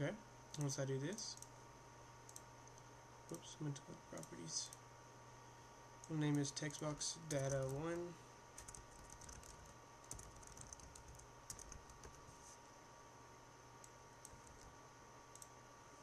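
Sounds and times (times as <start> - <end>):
typing on computer keyboard: 7.3 - 7.8, 8.6 - 12.2, 13.8 - 14.7.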